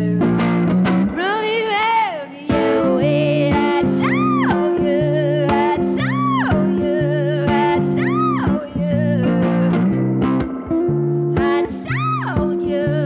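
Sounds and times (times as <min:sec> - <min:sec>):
woman singing: 0:00.0 - 0:10.1, 0:11.3 - 0:13.0
guitar chords: 0:00.0 - 0:13.0.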